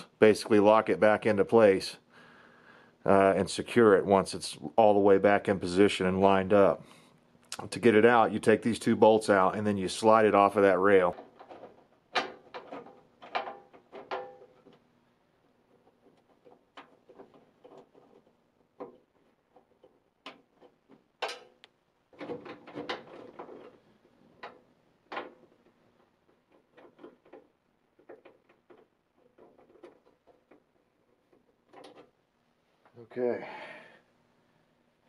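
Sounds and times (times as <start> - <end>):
metal clicks and knocks: 11.1 - 14.9, 15.7 - 32.2.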